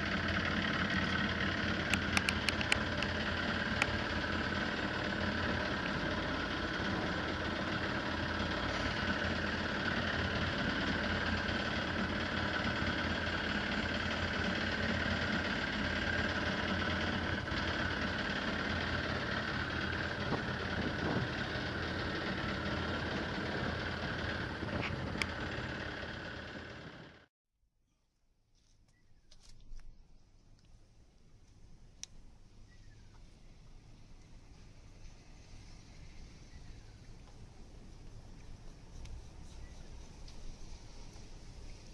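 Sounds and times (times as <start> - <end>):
boat engine idling: 0.0 - 27.3.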